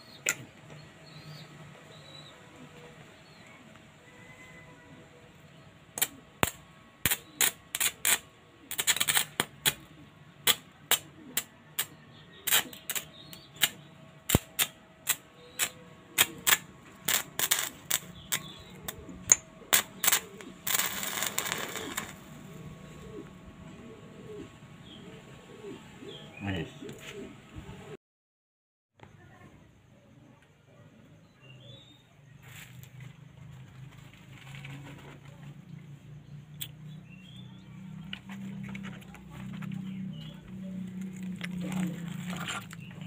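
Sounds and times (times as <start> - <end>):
electric arc snapping and crackling: 6.0 - 22.3
electric arc sputtering sizzle: 6.0 - 22.6.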